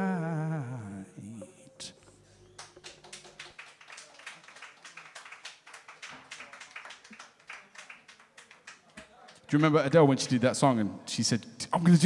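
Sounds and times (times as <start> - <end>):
small audience clapping: 2.4 - 9.8.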